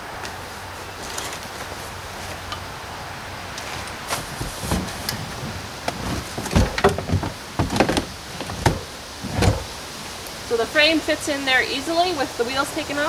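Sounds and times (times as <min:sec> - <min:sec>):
metal frame knocking and scraping: 0:03.6 - 0:09.8.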